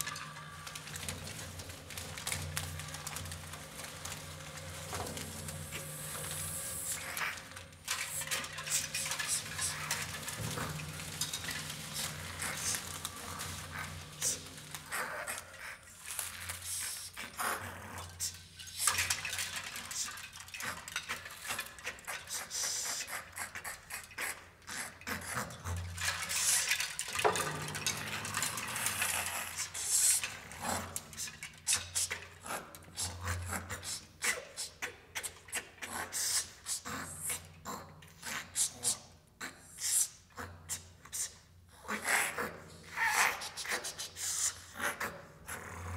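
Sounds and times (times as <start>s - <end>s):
coins scraping metal bells: 0.0s - 14.7s
paper being crumpled: 0.0s - 17.1s.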